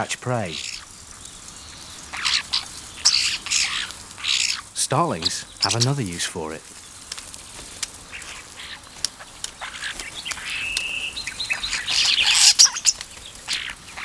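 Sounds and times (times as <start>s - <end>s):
starling clicks: 0.0s - 14.0s
starling rattling chatter: 0.0s - 14.0s
starling whistle: 9.6s - 14.0s.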